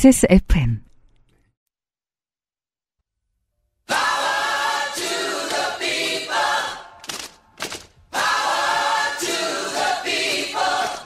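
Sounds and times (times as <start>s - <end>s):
a cappella group singing jingle: 3.9s - 7.1s, 8.1s - 11.0s.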